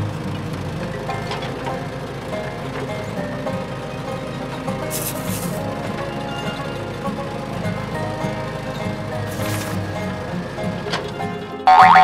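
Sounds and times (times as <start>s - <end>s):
background music with held tones: 0.0s - 12.0s
sand pouring into plastic trailer: 4.9s - 5.6s, 9.3s - 9.8s.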